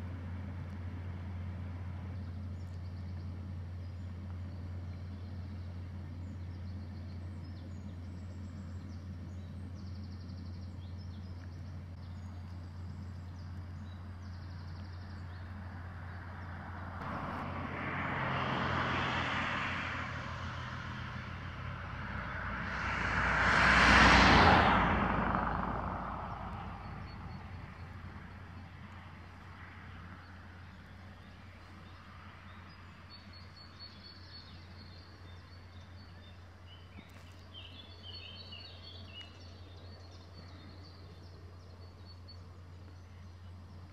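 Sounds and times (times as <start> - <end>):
vehicle passing by: 7.4 - 42.1.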